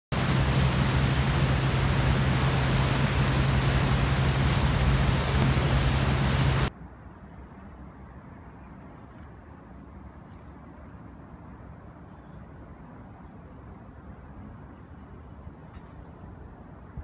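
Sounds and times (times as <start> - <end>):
boat engine drone: 0.1 - 6.7.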